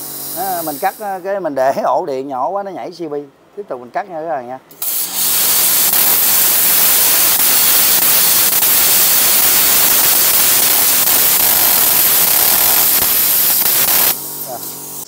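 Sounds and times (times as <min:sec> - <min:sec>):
plasma cutter hissing: 0:00.0 - 0:01.2, 0:04.7 - 0:15.0.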